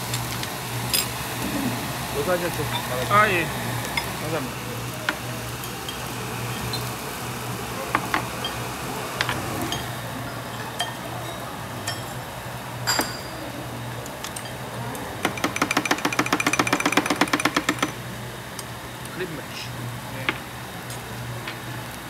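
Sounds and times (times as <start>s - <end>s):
metal tongs clinking on stone bowls: 0.0s - 1.2s, 3.9s - 4.2s, 5.0s - 6.9s, 7.9s - 18.0s
rapid sharp clicks: 15.2s - 18.0s.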